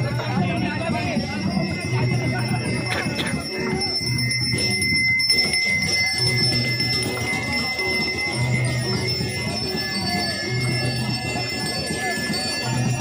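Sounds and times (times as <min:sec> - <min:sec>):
bells ringing: 0:00.0 - 0:13.0
music: 0:00.0 - 0:13.0.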